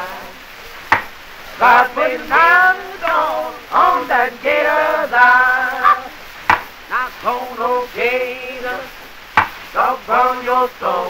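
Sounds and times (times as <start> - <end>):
man singing: 1.6 - 6.2, 6.9 - 9.0, 9.7 - 11.0.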